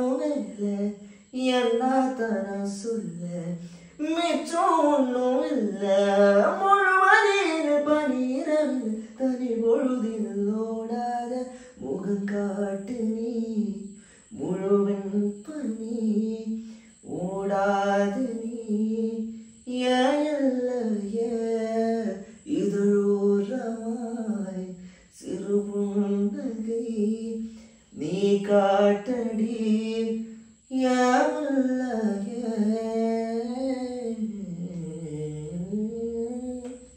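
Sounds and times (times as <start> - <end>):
man singing unaccompanied: 0.0 - 36.9
man breathing: 1.0 - 1.3, 3.6 - 4.0, 11.5 - 11.8, 13.9 - 14.4, 16.6 - 17.0, 24.8 - 25.2, 27.4 - 27.9.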